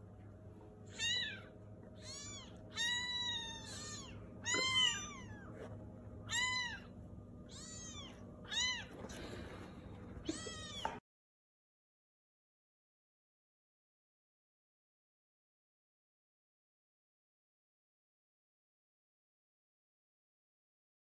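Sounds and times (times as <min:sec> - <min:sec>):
kittens mewing: 0:00.9 - 0:05.6, 0:06.2 - 0:11.0.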